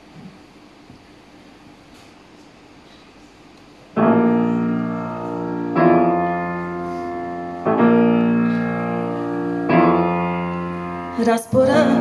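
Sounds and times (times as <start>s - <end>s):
low room hum: 0.0s - 12.0s
grand piano chords: 3.8s - 12.0s.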